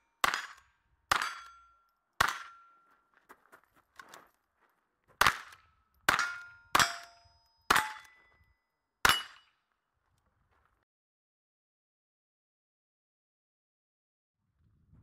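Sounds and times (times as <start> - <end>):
bullet clanging on steel target: 0.1 - 3.0, 5.2 - 9.6.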